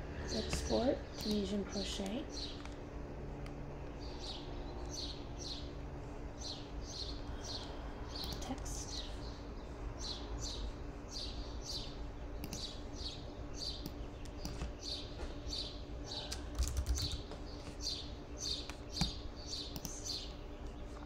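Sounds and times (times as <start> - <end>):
computer keyboard typing: 0.4 - 2.8, 16.2 - 17.8, 18.7 - 20.1
small bird chirping: 3.7 - 21.0
mouse clicks: 12.4 - 12.7, 18.6 - 20.1.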